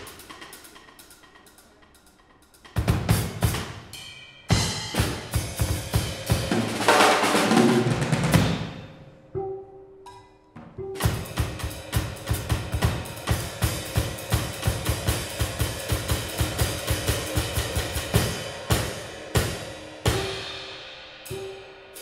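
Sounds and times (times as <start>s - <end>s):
jazz drum kit playing: 2.6s - 8.8s, 10.6s - 22.0s.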